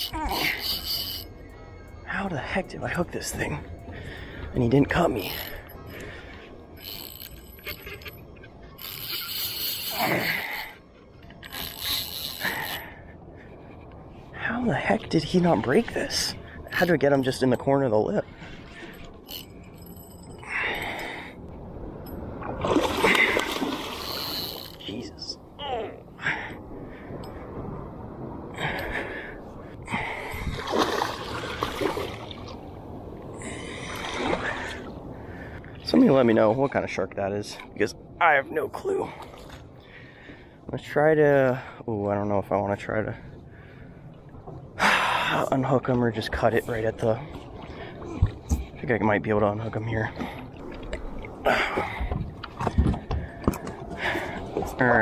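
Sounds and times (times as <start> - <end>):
spinning reel clicking: 0.0 - 1.3, 8.8 - 10.0, 11.4 - 12.8
water splashing and sloshing: 0.0 - 55.0.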